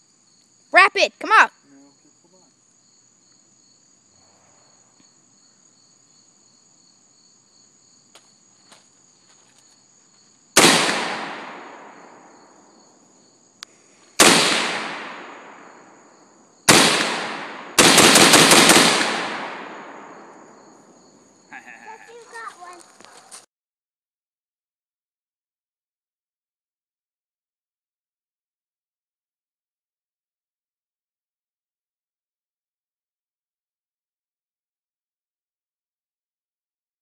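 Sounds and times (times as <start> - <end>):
insects shrilling: 0.0 - 10.6, 20.3 - 23.4
rapid rifle fire: 10.6 - 12.3, 14.2 - 15.8, 16.7 - 20.3
rifle shots echoing: 10.6 - 12.4, 14.2 - 15.9, 16.7 - 20.5.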